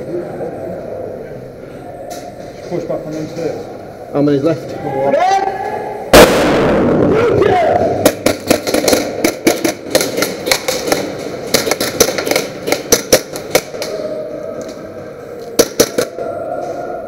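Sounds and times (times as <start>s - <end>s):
airsoft gunshots: 6.1s - 13.8s, 15.6s - 16.2s
pellet impacts: 8.0s - 13.8s.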